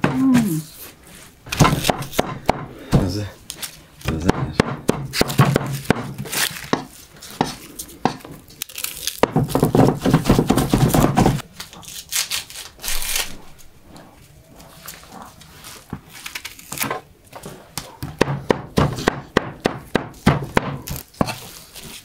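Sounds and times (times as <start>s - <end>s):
onion skins crackling and tearing: 3.4s - 4.2s, 5.1s - 9.9s, 11.4s - 17.9s, 20.1s - 22.0s.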